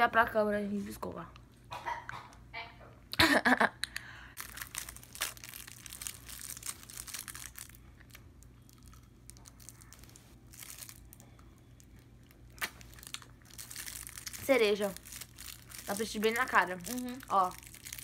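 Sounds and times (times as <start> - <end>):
plastic wrapper crinkling: 4.4 - 18.0.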